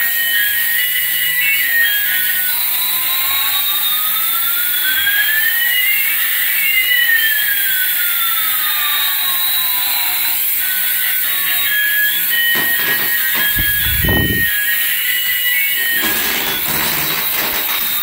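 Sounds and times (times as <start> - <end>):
electronic whining tones: 9.8 - 18.0.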